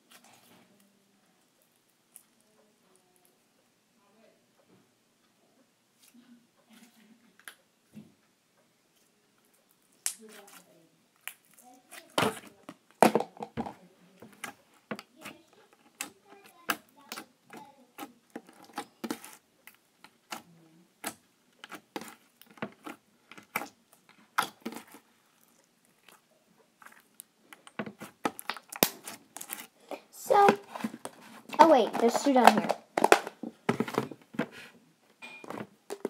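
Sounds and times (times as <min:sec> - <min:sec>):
slime squelching and popping: 0:14.3 - 0:34.0.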